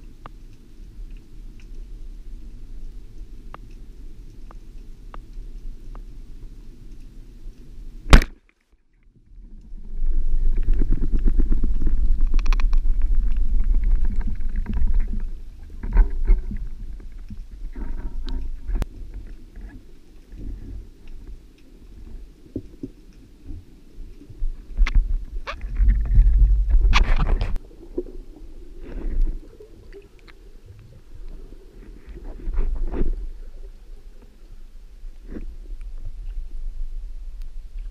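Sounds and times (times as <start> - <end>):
speargun firing crack: 8.1 - 8.4
water rushing underwater: 9.5 - 21.1, 23.6 - 37.9.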